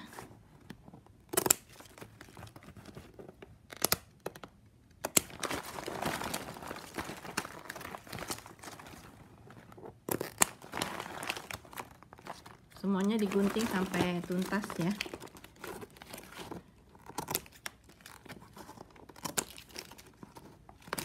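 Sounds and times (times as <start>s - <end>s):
scissors snipping plastic: 3.7s - 8.4s
crinkling plastic strips: 5.0s - 21.0s.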